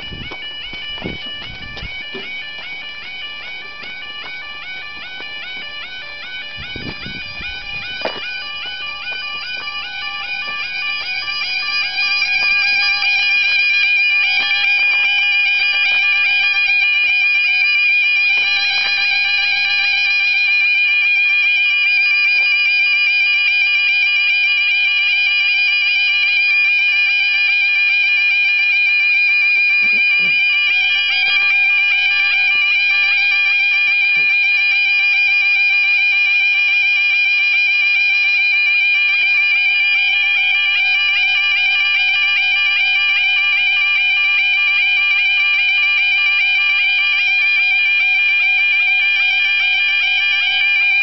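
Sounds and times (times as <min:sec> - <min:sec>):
steady high tone: 0:00.0 - 0:36.7
level crossing warning alarm: 0:00.0 - 0:51.0.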